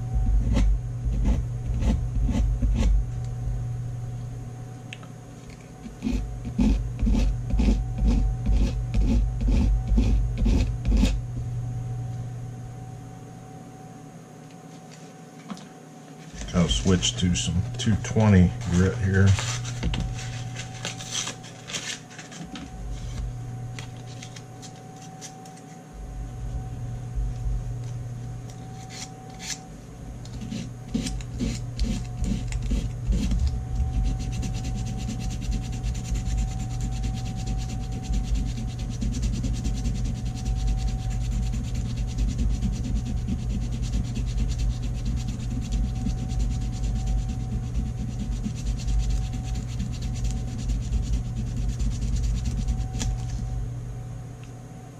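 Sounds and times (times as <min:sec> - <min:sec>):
sandpaper rubbing back and forth: 0:30.4 - 0:53.0.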